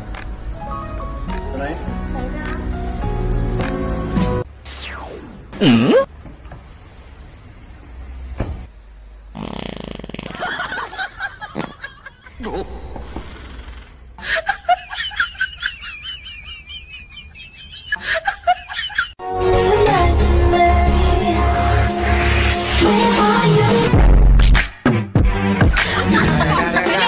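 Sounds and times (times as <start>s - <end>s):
person burping: 5.6s - 6.1s
laughter: 10.3s - 12.8s, 14.2s - 19.2s.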